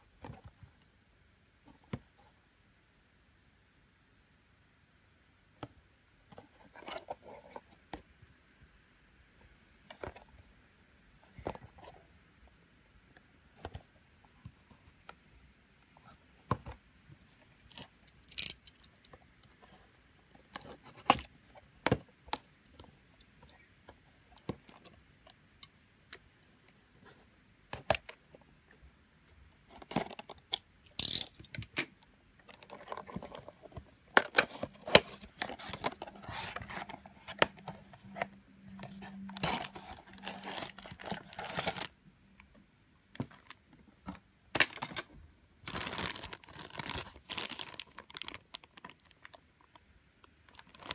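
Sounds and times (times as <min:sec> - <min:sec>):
cardboard box being opened: 0:39.3 - 0:41.9
plastic bag crinkling: 0:45.6 - 0:49.4.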